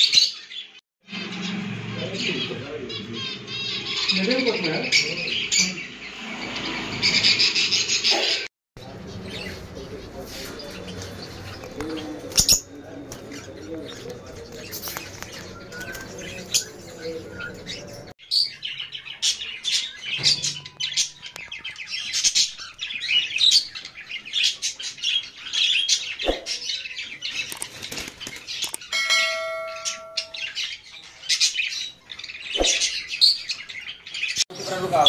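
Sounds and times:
parrots chirping and twittering: 0.0 - 35.0
steady ringing tone: 28.9 - 30.6.

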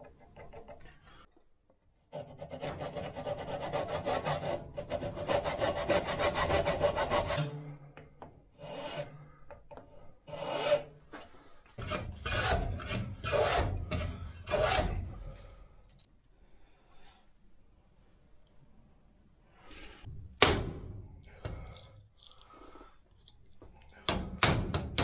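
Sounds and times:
file rasping across wood: 2.1 - 7.6, 8.6 - 9.2, 10.3 - 10.9, 11.8 - 15.2
saw cutting wood: 2.2 - 7.6, 10.3 - 10.9, 11.8 - 15.2.

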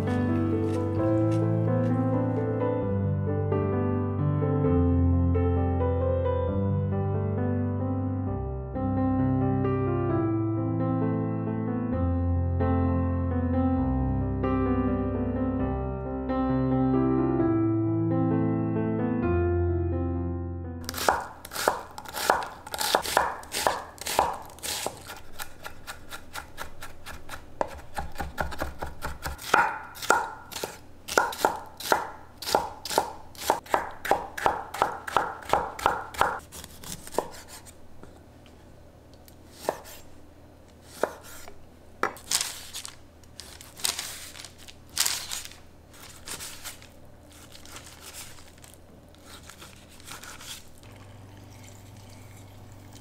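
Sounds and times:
knife chopping on wooden board: 20.9 - 37.7, 39.6 - 40.0, 40.9 - 42.4.

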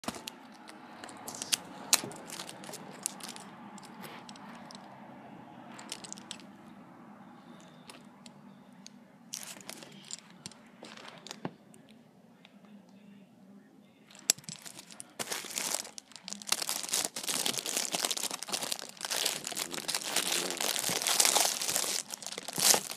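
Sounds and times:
plastic pencils clicking and rattling: 0.0 - 4.9, 5.8 - 6.5, 9.4 - 11.4, 14.1 - 22.9
faint steady hum: 0.0 - 22.9.

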